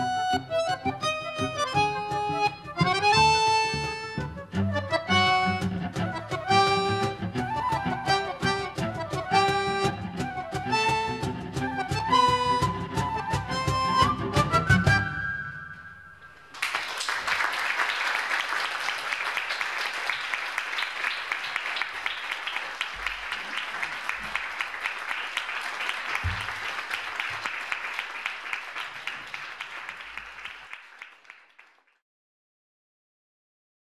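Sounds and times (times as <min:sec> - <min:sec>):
audience applauding: 0:16.4 - 0:32.0.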